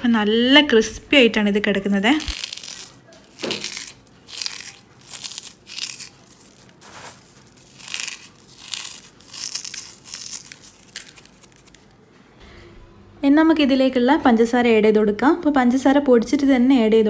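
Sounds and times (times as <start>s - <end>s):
crisp flakes rustling in bowl: 2.0s - 11.9s.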